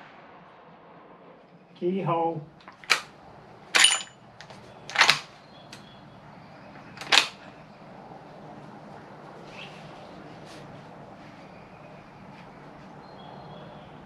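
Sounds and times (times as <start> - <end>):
rifle bolt metallic clacks: 4.9 - 5.3.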